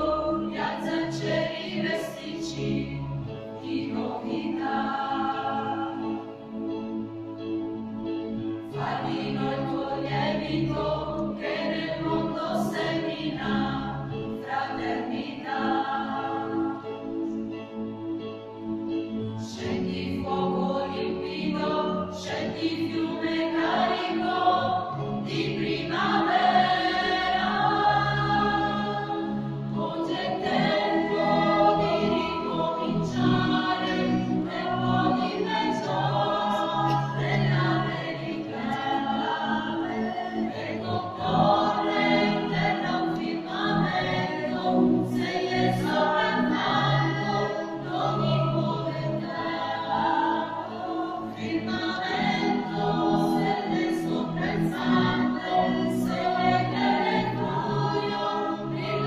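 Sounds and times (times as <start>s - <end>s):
mixed choir singing: 0.0s - 6.8s, 8.5s - 17.6s, 19.2s - 59.0s.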